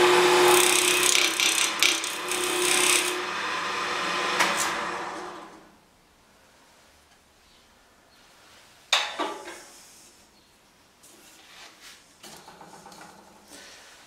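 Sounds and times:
metal tool scraping wood: 0:00.2 - 0:03.2.

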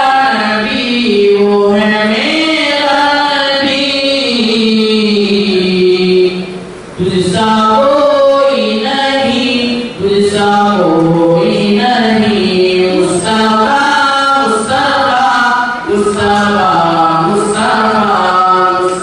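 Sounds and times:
young male voices singing: 0:07.0 - 0:19.0.

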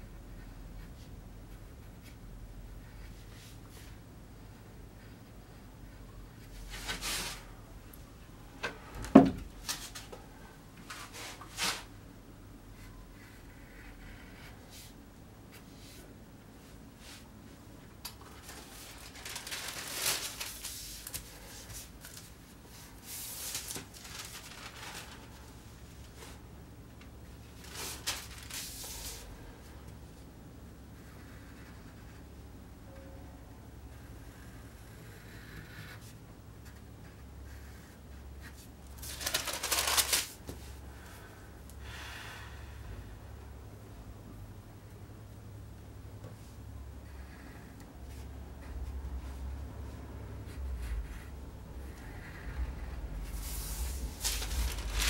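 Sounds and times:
low steady hum: 0:00.0 - 0:55.0
paper rustling: 0:18.3 - 0:26.4, 0:27.6 - 0:29.3, 0:38.5 - 0:40.7, 0:53.2 - 0:55.0.

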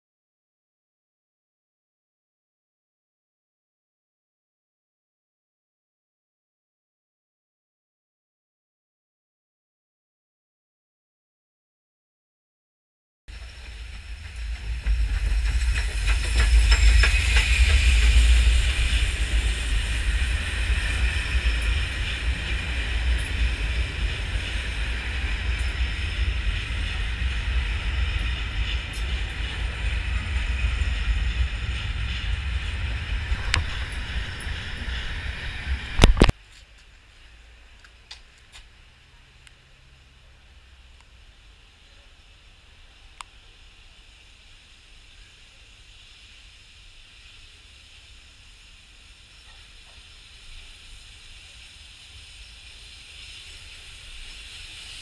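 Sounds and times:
train wheels rumbling on rails: 0:13.3 - 0:36.4, 0:37.4 - 0:55.0.

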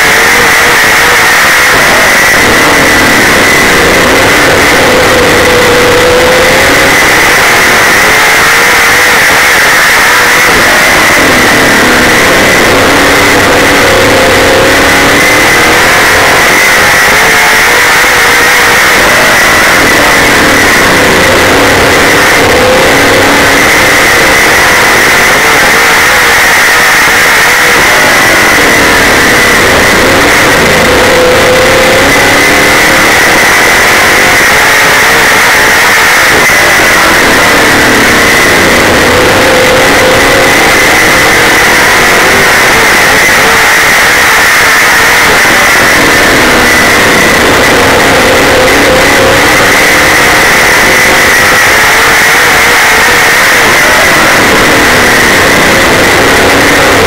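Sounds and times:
race car engine at speed: 0:00.0 - 0:57.0.

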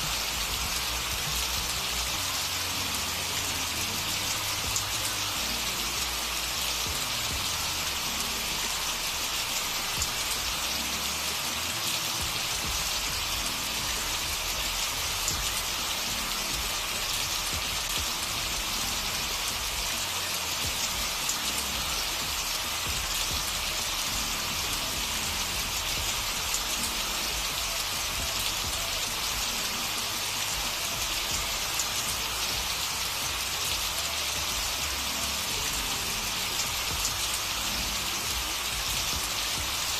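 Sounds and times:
steady rain hiss: 0:00.0 - 0:39.9.

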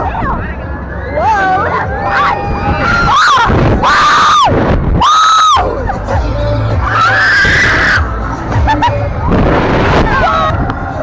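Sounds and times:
wind rumble on microphone: 0:00.0 - 0:11.0
women screaming: 0:01.0 - 0:05.8, 0:06.8 - 0:08.2.

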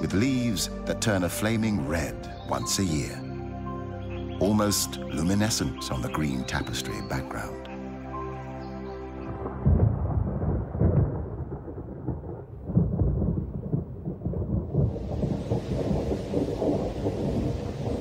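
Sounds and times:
thunder rumbling: 0:09.3 - 0:18.0
heavy rain hissing: 0:14.8 - 0:18.0.

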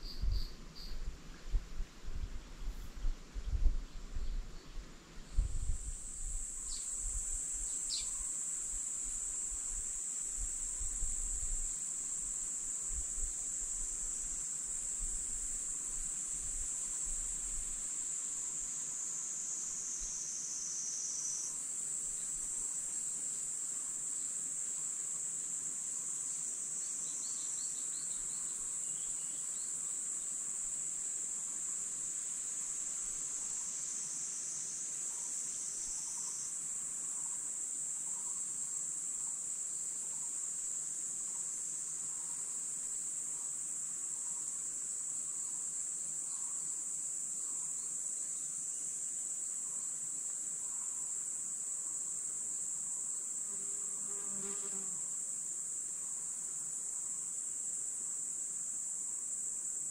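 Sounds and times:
faint bird chirps: 0:00.0 - 0:01.1, 0:07.6 - 0:08.3
insects chirring: 0:00.0 - 0:59.9.

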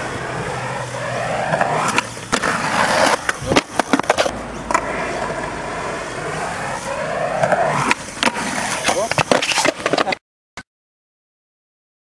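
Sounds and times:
skateboard clacks: 0:00.0 - 0:06.4, 0:07.2 - 0:10.2
skateboard wheels rolling on concrete: 0:00.0 - 0:10.2.

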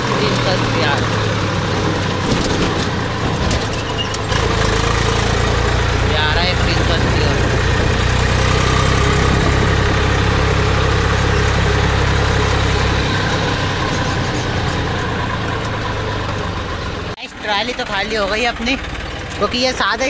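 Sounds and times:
tractor diesel engine running: 0:00.0 - 0:20.0.

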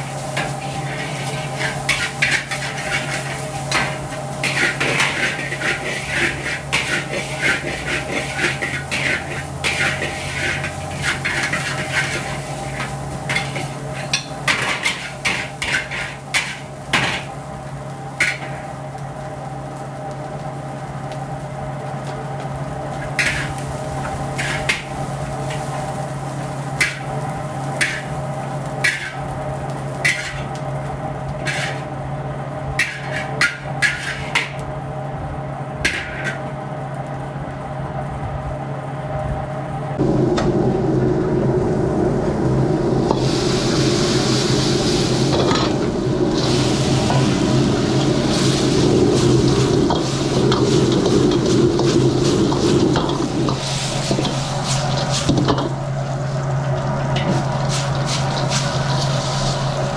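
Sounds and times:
steady mechanical hum: 0:00.0 - 0:59.9
metal utensils scraping a wok: 0:00.1 - 0:17.3, 0:23.0 - 0:23.6, 0:24.3 - 0:26.0, 0:27.8 - 0:28.2, 0:28.8 - 0:29.3, 0:30.0 - 0:30.6, 0:31.4 - 0:31.9, 0:32.8 - 0:34.6, 0:35.9 - 0:36.4, 0:48.0 - 0:55.7, 0:57.1 - 0:59.9.

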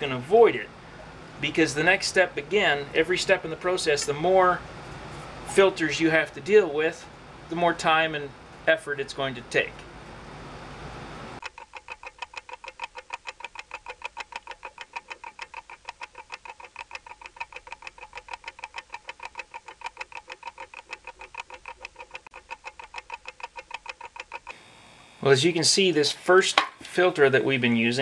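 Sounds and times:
clock ticking rapidly: 0:11.4 - 0:24.6.

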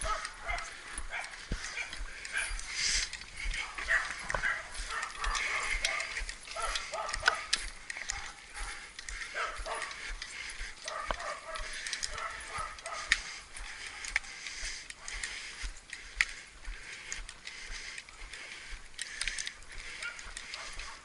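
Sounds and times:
gear rattling: 0:00.0 - 0:14.4
footsteps: 0:00.0 - 0:21.0.

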